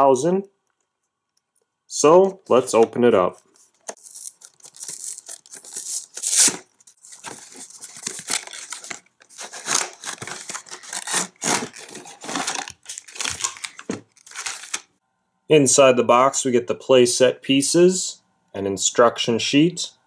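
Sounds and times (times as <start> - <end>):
cardboard box rustling and crinkling: 4.0 - 14.8.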